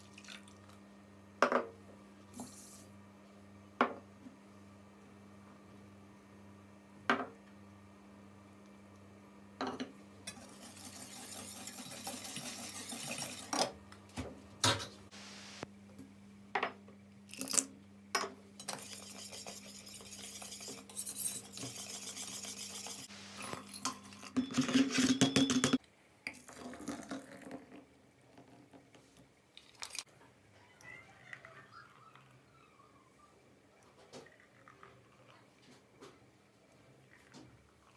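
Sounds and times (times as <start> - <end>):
utensil stirring and scraping pot: 10.3 - 13.6, 18.6 - 23.1.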